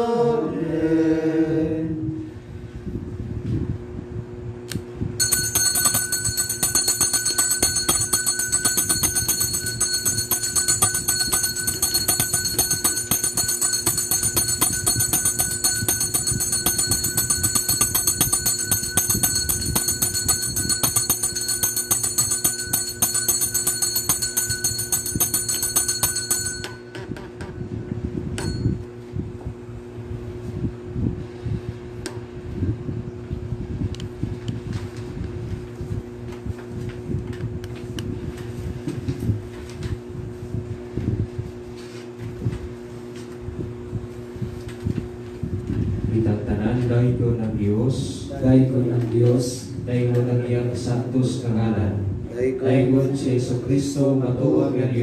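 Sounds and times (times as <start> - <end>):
steady low hum: 0.0 - 55.0
bell shaken rapidly: 5.2 - 26.9.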